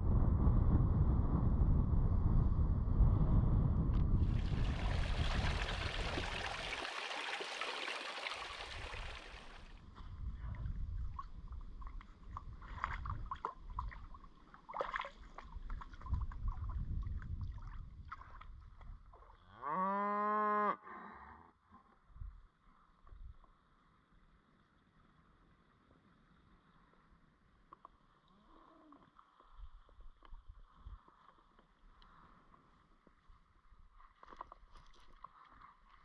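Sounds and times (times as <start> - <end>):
wind on microphone: 0.0 - 6.8, 8.5 - 14.2, 15.4 - 19.2
water splashing and sloshing: 4.2 - 9.7, 10.6 - 19.2.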